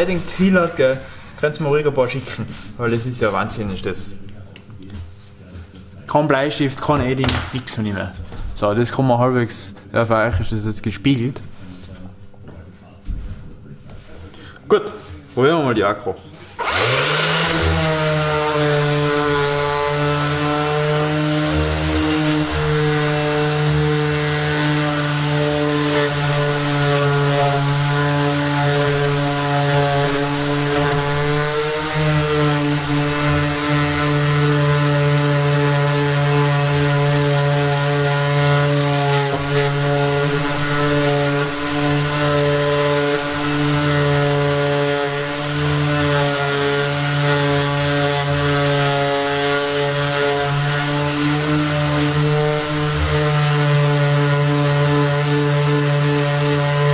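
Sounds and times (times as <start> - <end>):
orbital sander sanding wood: 16.4 - 56.9.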